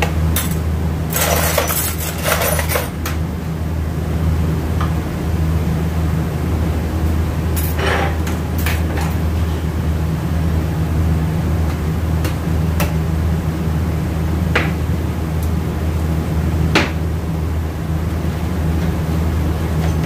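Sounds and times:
workshop machinery drone: 0:00.0 - 0:20.0
metal parts clinking: 0:00.4 - 0:02.9.

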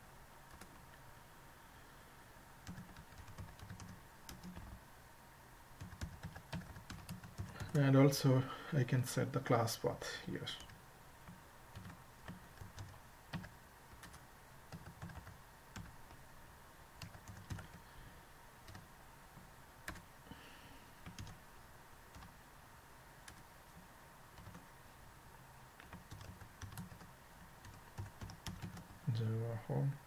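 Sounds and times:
faint keyboard typing: 0:00.4 - 0:01.0, 0:02.6 - 0:04.8, 0:05.8 - 0:07.9, 0:10.5 - 0:16.2, 0:17.0 - 0:17.9, 0:18.6 - 0:20.4, 0:21.0 - 0:21.4, 0:22.1 - 0:22.4, 0:23.2 - 0:24.7, 0:25.8 - 0:29.2.

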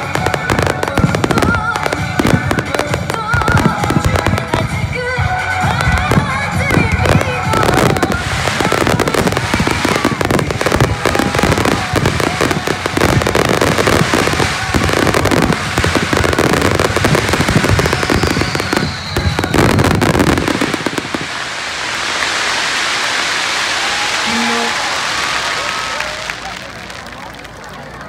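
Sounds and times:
firework bangs and booms: 0:00.0 - 0:26.6
firework crackle: 0:00.0 - 0:28.0
steady hiss: 0:19.9 - 0:25.7.

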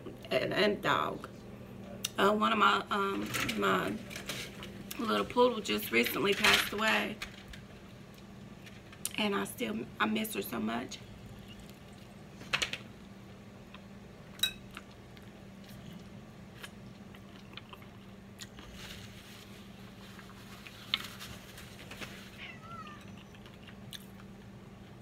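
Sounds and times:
chewing fried chicken: 0:11.2 - 0:12.4, 0:14.6 - 0:25.0
cat meowing: 0:22.3 - 0:23.3.

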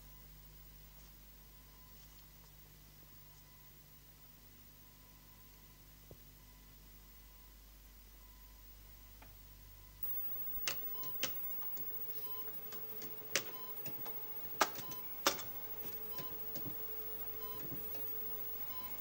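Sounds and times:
steady electronic hum: 0:00.0 - 0:19.0
equipment ticking and clicking: 0:10.0 - 0:19.0
faint short beeps: 0:10.0 - 0:19.0.

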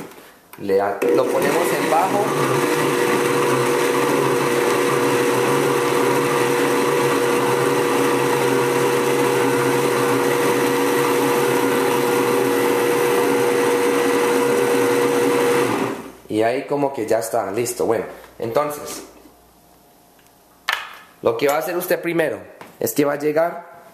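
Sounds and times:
blender running on low speed: 0:01.0 - 0:16.2.

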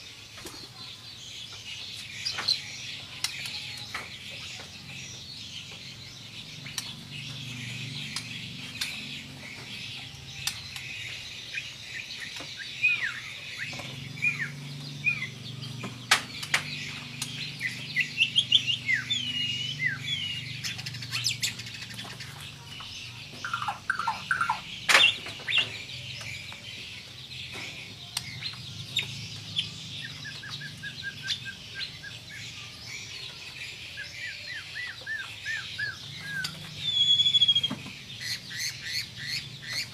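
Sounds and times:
bird singing whistled phrases: 0:34.0 - 0:39.9.

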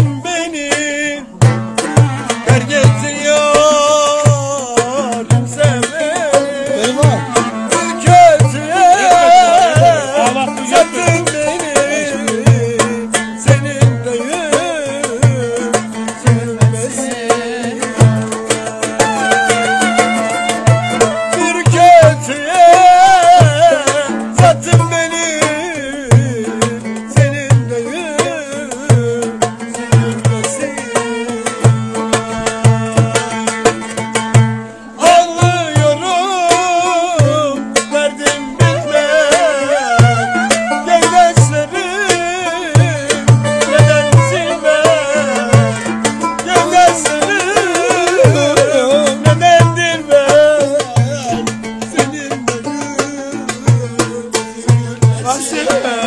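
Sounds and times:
goblet drums playing a rhythm: 0:00.0 - 0:56.0
ornamented melody line: 0:00.0 - 0:56.0
held accompaniment notes: 0:01.4 - 0:56.0.

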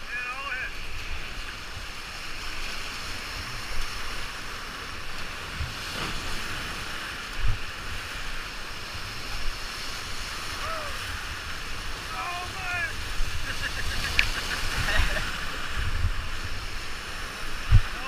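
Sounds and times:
whitewater rushing: 0:00.0 - 0:18.0
wind on microphone: 0:00.8 - 0:12.2, 0:12.8 - 0:18.0.

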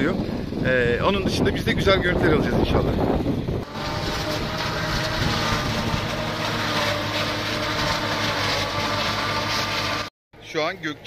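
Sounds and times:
forage harvester engine drone: 0:00.0 - 0:11.0
rush of chopped crop: 0:03.6 - 0:10.1.

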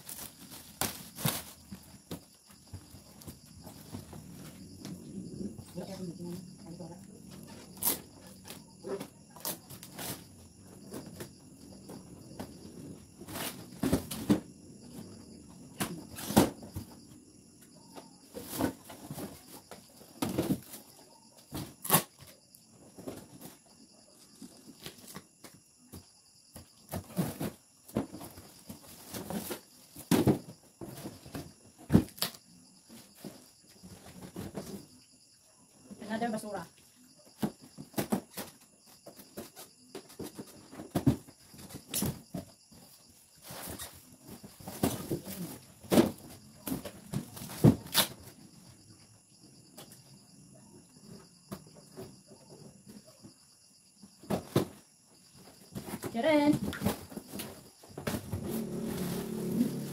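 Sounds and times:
cardboard boxes rustling and knocking: 0:00.0 - 0:05.0, 0:07.5 - 0:17.2, 0:18.0 - 0:22.3, 0:24.7 - 0:32.4, 0:33.0 - 0:35.0, 0:37.3 - 0:48.4, 0:54.0 - 0:59.9.

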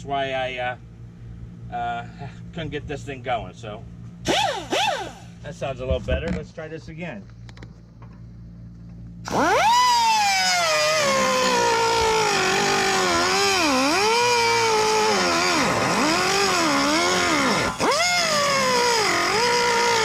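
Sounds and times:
pneumatic cut-off tool whine: 0:04.2 - 0:05.4, 0:09.2 - 0:20.0.

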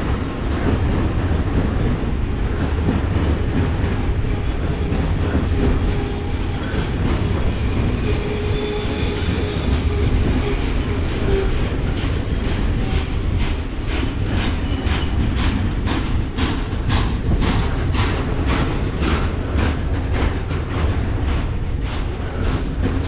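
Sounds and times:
freight train rumbling past: 0:00.0 - 0:23.0.

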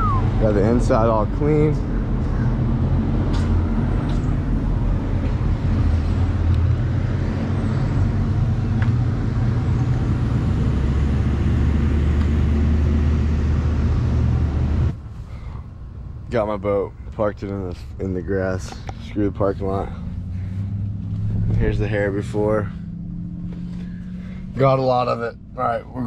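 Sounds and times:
vehicle engine idling: 0:12.5 - 0:26.0.

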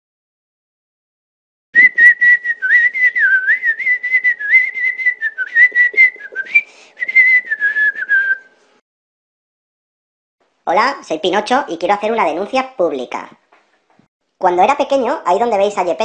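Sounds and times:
person whistling a tune: 0:01.8 - 0:08.5.

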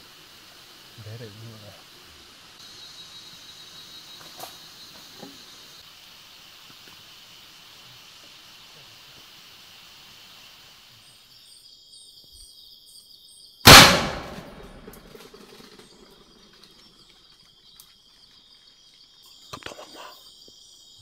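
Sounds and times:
insects trilling: 0:00.0 - 0:21.0
loud gunshot with echo: 0:13.7 - 0:15.1.

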